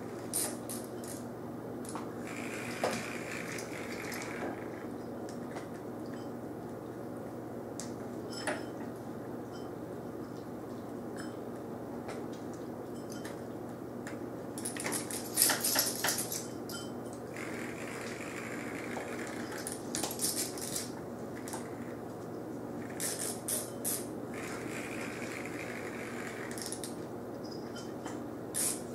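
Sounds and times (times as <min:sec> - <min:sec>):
steady low hum: 0:00.0 - 0:08.4, 0:13.7 - 0:28.9
claws clicking on tile floor: 0:17.4 - 0:21.9, 0:22.8 - 0:27.0.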